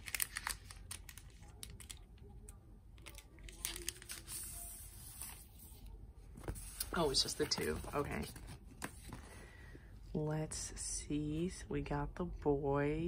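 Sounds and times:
plastic sleeve crinkling: 0.0 - 2.3, 3.0 - 5.4.

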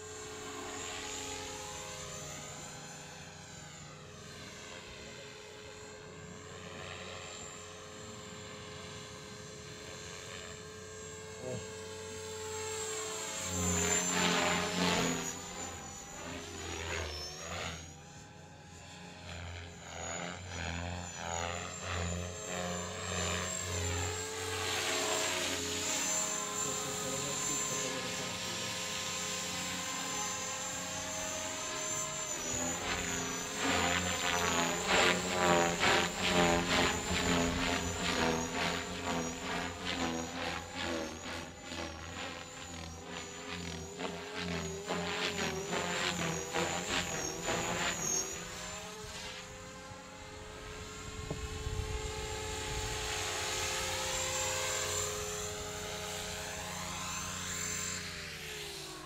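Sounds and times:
model helicopter rotor chopping: 0.0 - 59.0
thin high whine: 4.5 - 59.0.

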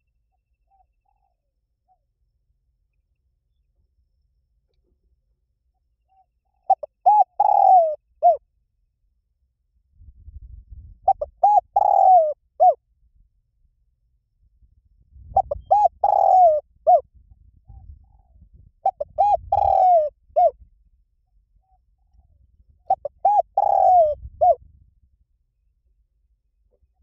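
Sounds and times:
dove cooing: 6.6 - 8.4, 11.1 - 12.8, 15.4 - 17.0, 17.7 - 20.6, 22.9 - 24.6.

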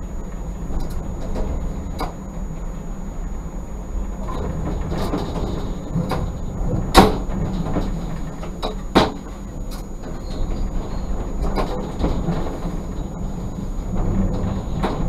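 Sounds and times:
tram running gear drone: 0.0 - 15.0
sharp wheel knocks: 4.3 - 15.0.

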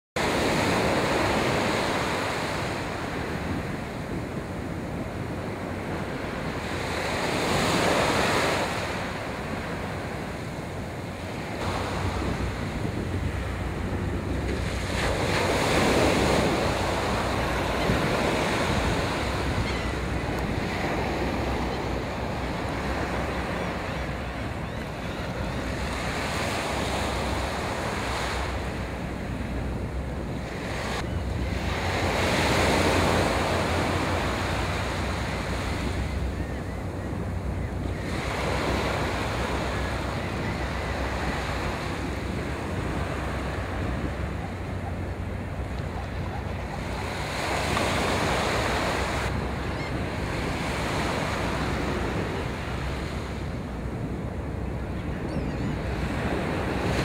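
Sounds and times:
wind buffeting microphone: 7.7 - 46.8.

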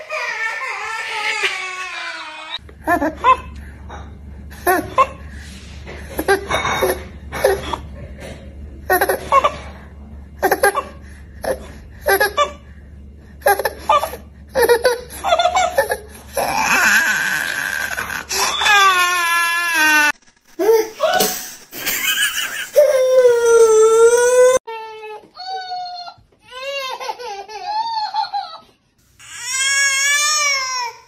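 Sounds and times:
baby crying: 0.0 - 2.6
baby laughing: 13.4 - 16.4.

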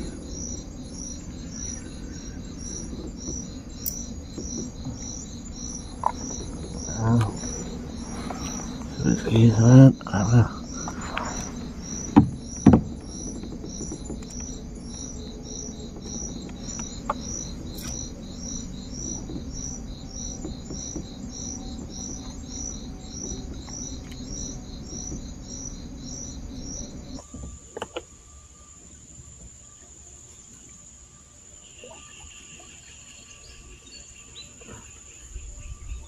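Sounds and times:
low background rumble: 0.0 - 27.3
insect chirping: 0.0 - 36.0
sharp knocks: 10.8 - 15.1.

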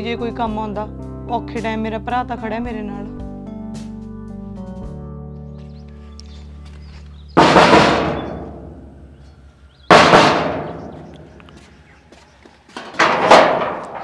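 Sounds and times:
sheet metal gate banging: 7.4 - 9.3, 9.9 - 11.5, 12.8 - 14.0.

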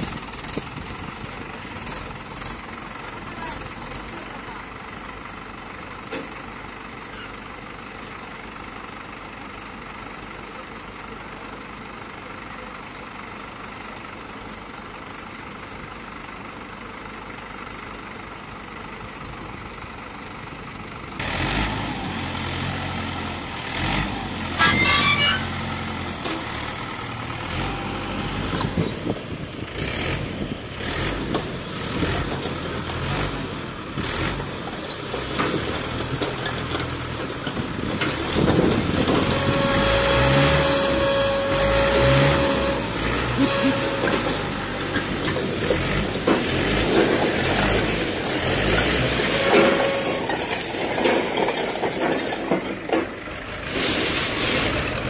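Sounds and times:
tractor diesel engine revving: 0.0 - 5.8, 19.5 - 55.0.

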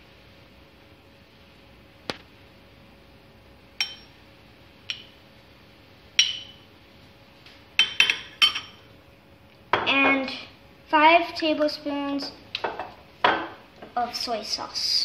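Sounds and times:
metal spoon clinking on ceramic bowl: 3.8 - 4.2, 6.2 - 6.6, 7.8 - 8.8.

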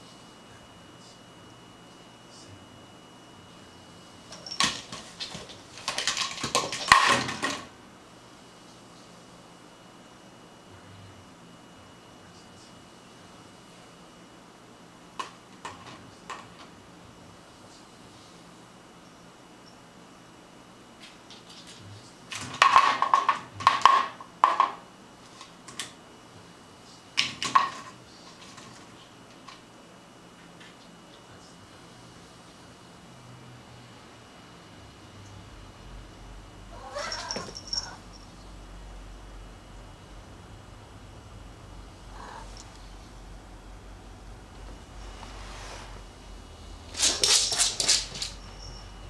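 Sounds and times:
plastic bottle clattering across floor: 4.4 - 7.7.

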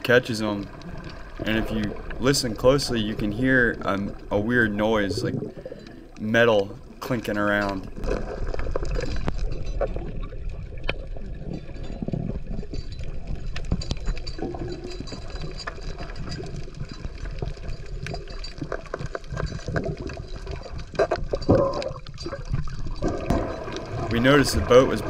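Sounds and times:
underwater water rush and bubbling: 0.0 - 25.0
faint metallic clinks: 9.0 - 24.9.

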